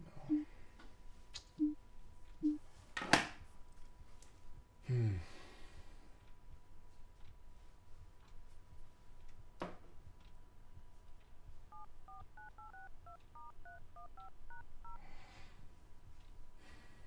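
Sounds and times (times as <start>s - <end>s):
touch-tone beeps: 11.7s - 15.0s.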